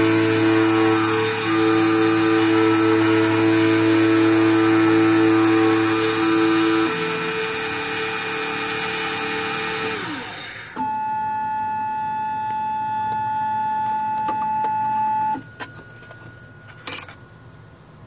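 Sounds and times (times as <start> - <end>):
key-cutting machine spindle running: 0.0 - 10.7
high steady motor whine: 0.0 - 18.0.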